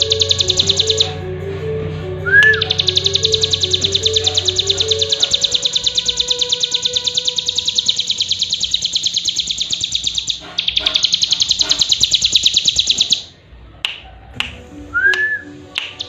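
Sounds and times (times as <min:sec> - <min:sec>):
bird chirping rapidly: 0:00.0 - 0:01.2, 0:02.3 - 0:13.4, 0:15.8 - 0:16.0.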